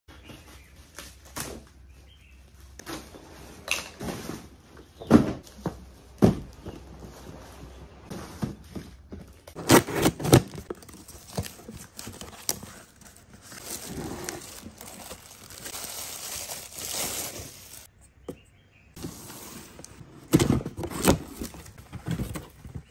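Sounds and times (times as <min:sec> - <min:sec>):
cardboard boxes knocking and scraping: 0:04.0 - 0:12.6, 0:20.2 - 0:22.9
plastic packaging crinkling: 0:09.6 - 0:17.9
scissors cutting plastic bag: 0:09.6 - 0:17.9.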